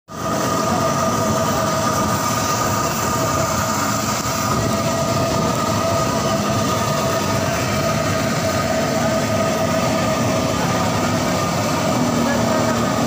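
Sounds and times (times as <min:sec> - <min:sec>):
food deep-frying in hot oil: 0:00.1 - 0:13.0
steady humming tones: 0:00.1 - 0:13.0.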